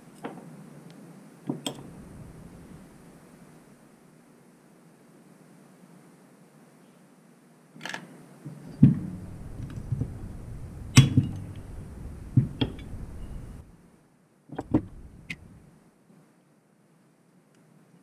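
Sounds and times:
low handling rumble: 0:01.8 - 0:03.7, 0:08.5 - 0:13.8, 0:14.6 - 0:15.7.

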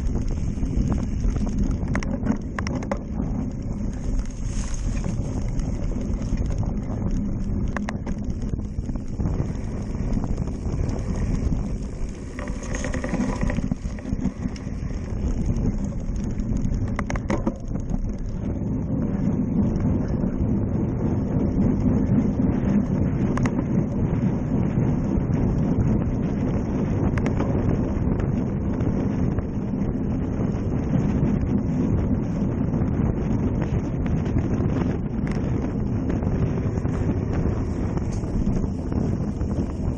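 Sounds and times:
tyres rolling on dirt: 0:00.0 - 0:20.0, 0:34.2 - 0:39.9
bike rattling: 0:00.0 - 0:39.9
wind buffeting microphone: 0:00.0 - 0:39.9.

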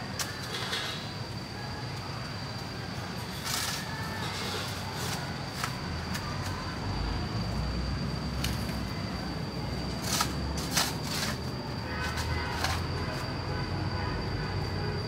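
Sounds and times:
high-pitched whine: 0:00.0 - 0:15.0
shovel blade scraping and knocking: 0:10.0 - 0:13.2.

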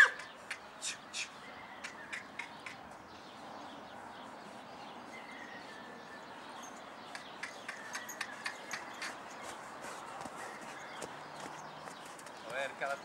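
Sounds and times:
faint bird chirp: 0:00.0 - 0:09.7
horse hoofbeats trotting: 0:06.7 - 0:13.0.

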